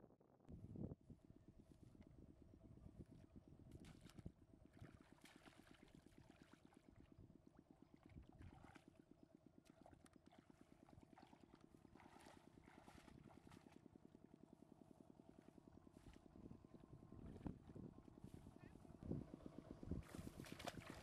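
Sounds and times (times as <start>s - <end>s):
basket splashing muddy water: 3.8s - 6.8s, 8.2s - 9.0s, 9.6s - 13.8s, 20.0s - 21.0s.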